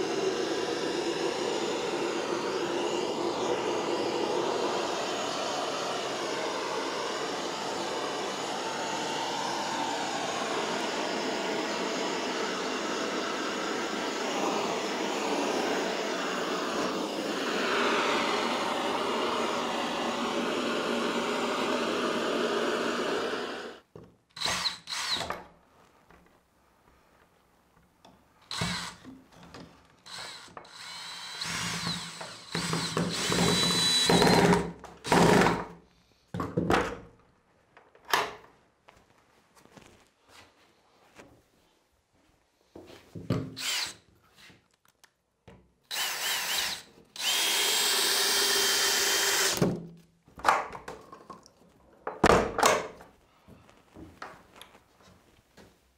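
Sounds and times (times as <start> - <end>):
cordless drill bursts: 0.0 - 23.8, 24.4 - 25.3, 28.4 - 29.1, 30.0 - 35.7, 43.6 - 44.0, 45.9 - 49.7.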